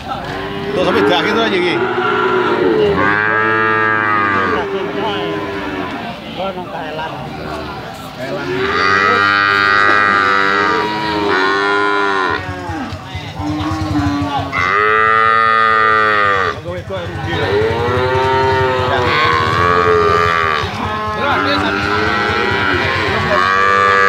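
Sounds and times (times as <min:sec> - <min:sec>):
calf mooing: 0:00.2 - 0:06.0, 0:08.4 - 0:16.6, 0:17.4 - 0:24.0.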